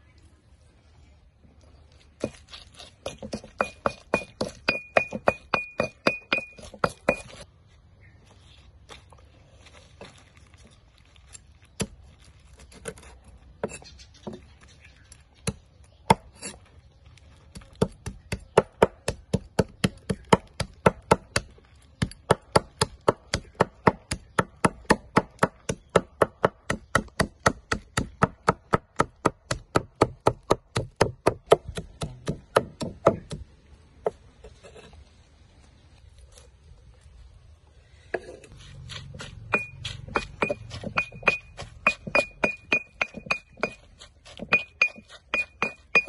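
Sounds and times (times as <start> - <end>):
cleaver chopping on wooden block: 3.0 - 7.4, 17.5 - 33.5, 38.9 - 46.0.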